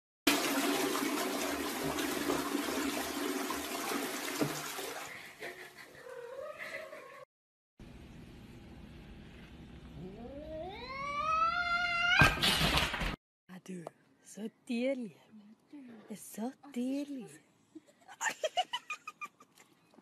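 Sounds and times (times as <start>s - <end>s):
toilet flushing: 0.3s - 5.8s
cat meowing: 10.0s - 12.3s.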